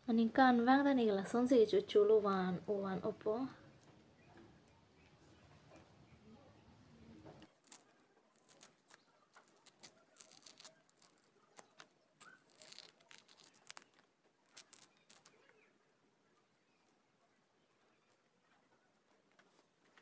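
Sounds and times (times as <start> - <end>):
orange peel ripping: 7.4 - 15.7.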